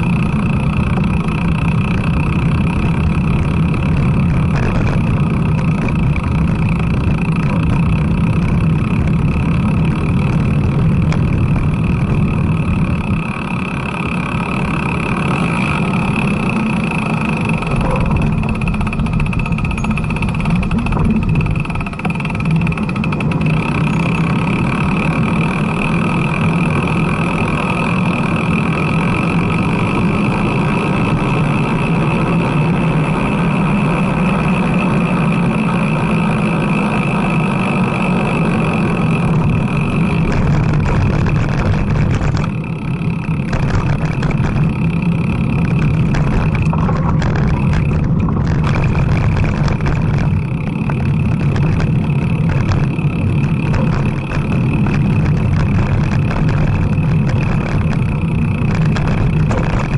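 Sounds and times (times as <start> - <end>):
bicycle road rumble: 0.0 - 59.9
wind rush: 45.8 - 59.9.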